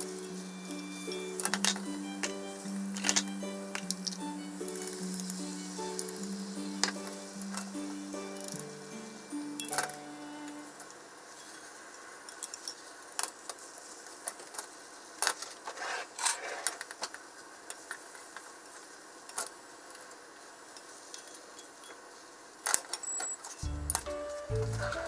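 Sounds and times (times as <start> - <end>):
faint steady hiss: 0.0 - 25.0.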